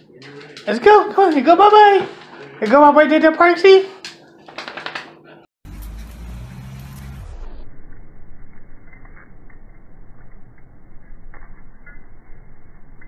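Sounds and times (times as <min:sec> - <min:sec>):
vehicle engine hum: 0:05.6 - 0:08.7.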